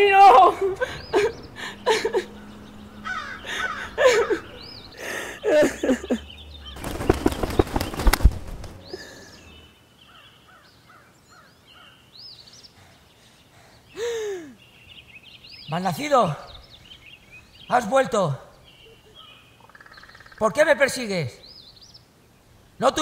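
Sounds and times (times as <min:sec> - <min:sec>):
small birds chirping: 0:00.0 - 0:23.0
crow cawing: 0:00.5 - 0:06.8.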